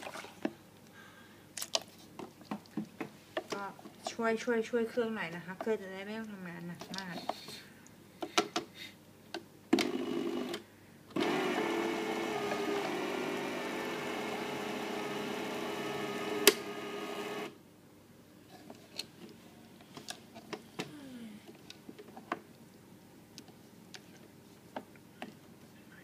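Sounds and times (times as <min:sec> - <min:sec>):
blender motor running: 0:11.2 - 0:17.6.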